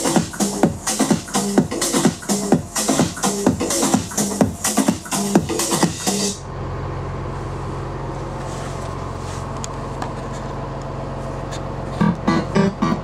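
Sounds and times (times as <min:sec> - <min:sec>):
music playing: 0:00.0 - 0:06.4, 0:12.0 - 0:13.0
bus engine droning: 0:00.0 - 0:13.0.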